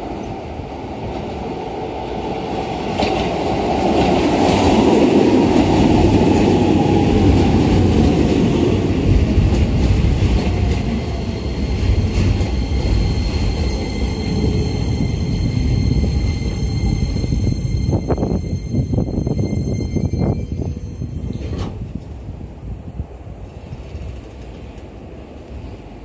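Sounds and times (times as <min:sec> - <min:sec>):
electric train rumble: 0:00.0 - 0:26.0
steady high-pitched tones: 0:11.0 - 0:21.5.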